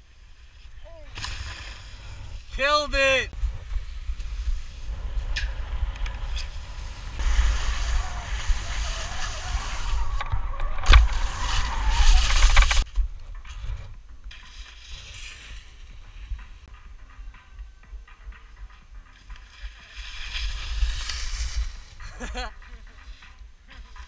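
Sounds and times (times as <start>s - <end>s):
skis scraping over snow: 0.0s - 16.7s, 19.1s - 24.0s
wind buffeting microphone: 3.3s - 14.2s.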